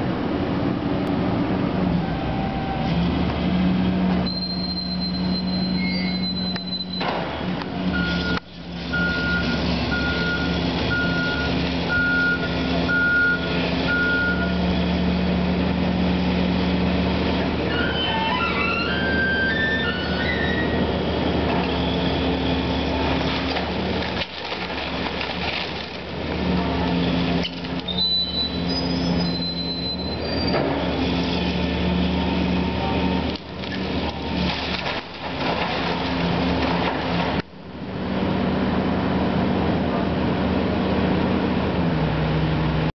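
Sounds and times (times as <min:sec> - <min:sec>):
excavator diesel engine: 0:00.0 - 0:42.9
crunch and clatter of timber debris: 0:23.2 - 0:26.4, 0:33.3 - 0:37.4.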